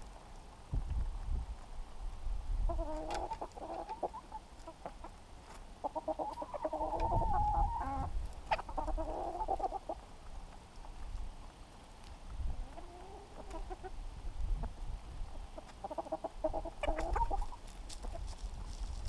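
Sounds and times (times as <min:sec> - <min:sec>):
hens clucking: 0:02.7 - 0:18.7.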